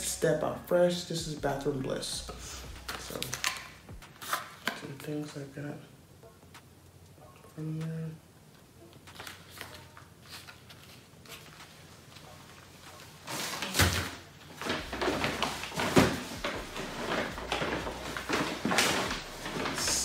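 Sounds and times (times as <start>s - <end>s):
rummaging rustles and knocks: 13.2s - 20.0s.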